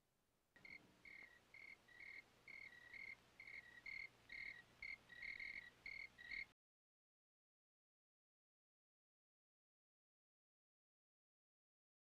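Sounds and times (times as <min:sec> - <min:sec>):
crickets chirping: 0:00.6 - 0:06.5.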